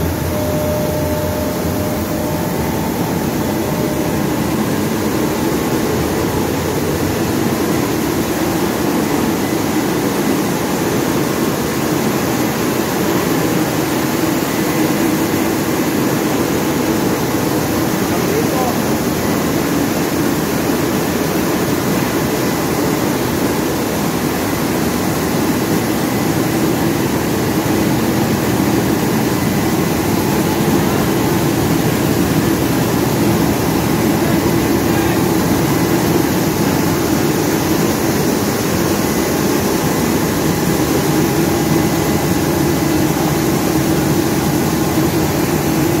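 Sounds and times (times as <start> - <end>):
rice milling machines droning: 0.0 - 46.0.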